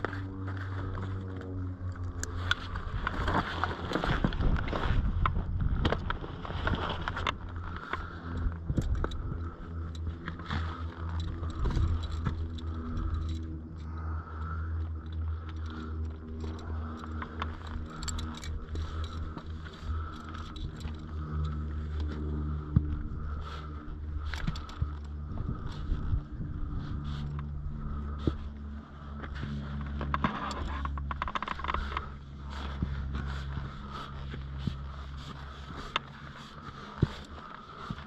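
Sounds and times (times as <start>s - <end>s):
wind rumble on microphone: 0.0s - 38.0s
karabiners clinking: 7.6s - 28.4s.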